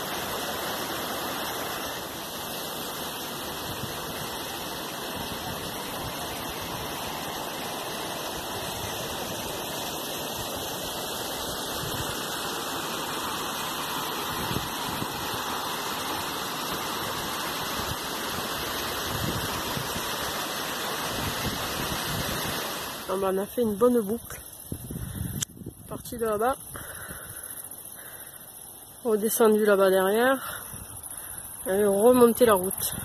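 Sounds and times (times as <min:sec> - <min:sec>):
river water rushing over rocks: 0:00.0 - 0:23.2.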